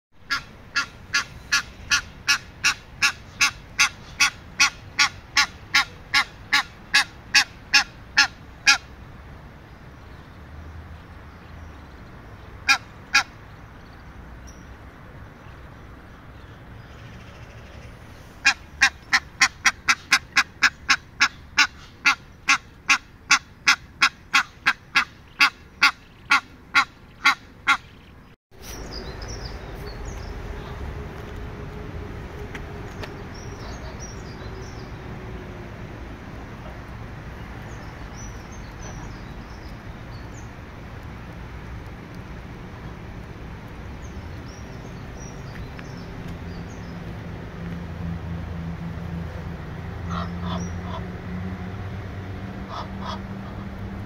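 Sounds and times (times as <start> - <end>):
goose honking: 0.3 - 8.8, 52.7 - 53.7.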